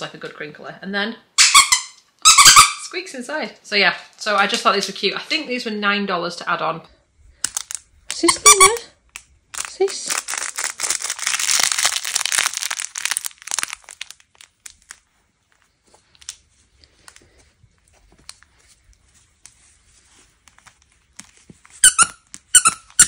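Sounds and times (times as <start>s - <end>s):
toy squeaker squeaking: 1.4s - 2.9s, 8.2s - 8.8s, 21.8s - 23.0s
crinkle paper crackling: 7.3s - 21.8s
toy rustling: 7.4s - 23.0s.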